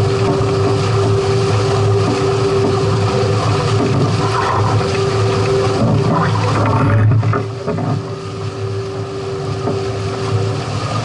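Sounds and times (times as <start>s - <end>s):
low drone: 0.0s - 11.0s
steady hum: 0.0s - 11.0s
water rushing: 0.0s - 11.0s.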